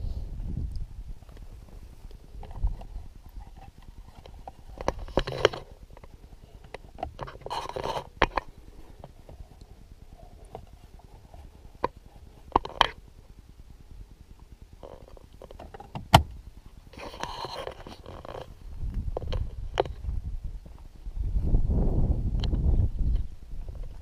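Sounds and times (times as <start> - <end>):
camera handling rustles: 2.1 - 9.5, 17.0 - 20.1.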